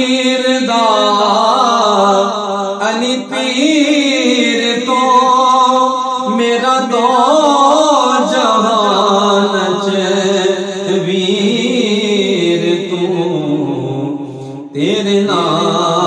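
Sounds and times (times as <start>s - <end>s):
man singing devotional song: 0.0s - 16.0s.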